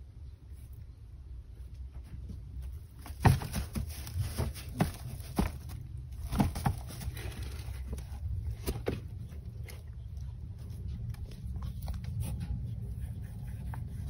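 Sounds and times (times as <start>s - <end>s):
straw crackling and rustling: 1.9s - 12.4s.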